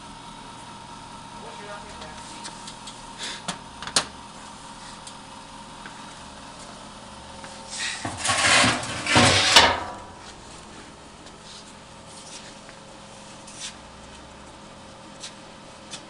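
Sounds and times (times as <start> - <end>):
machine carriage sliding along rails: 8.0 - 10.0.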